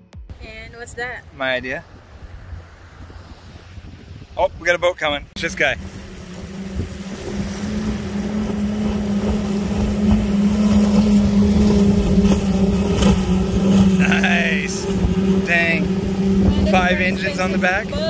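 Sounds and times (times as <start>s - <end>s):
powerboat engines droning: 5.0s - 18.0s.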